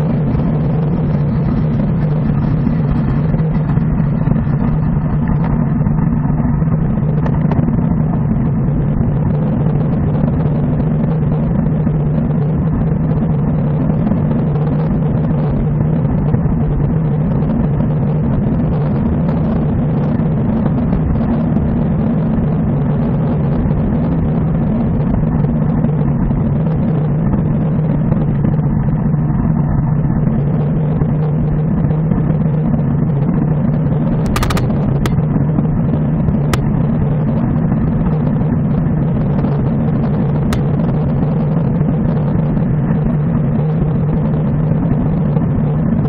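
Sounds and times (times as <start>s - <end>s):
road rumble: 0.0s - 46.0s
wind noise: 0.0s - 46.0s
sharp clicks: 34.2s - 35.2s.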